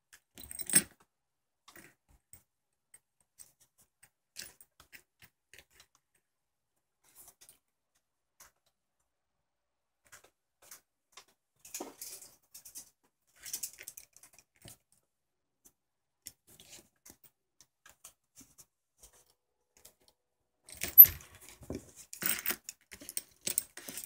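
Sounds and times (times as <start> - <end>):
metal lure clinking: 20.8 - 21.2.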